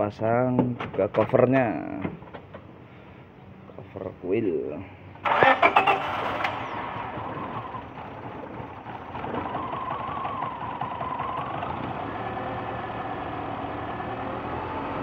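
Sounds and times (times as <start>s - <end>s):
car engine idling: 5.2s - 15.0s.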